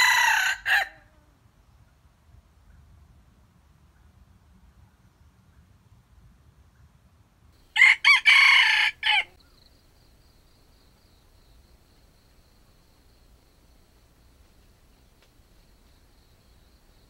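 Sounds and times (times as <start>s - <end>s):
rooster crowing: 0.0s - 1.1s, 7.7s - 9.4s.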